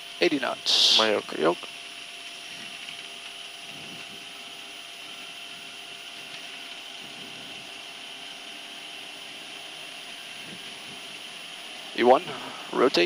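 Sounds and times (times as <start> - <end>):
cockpit hiss: 0.0 - 4.3, 9.0 - 13.0
faint jet engine whine: 0.0 - 13.0.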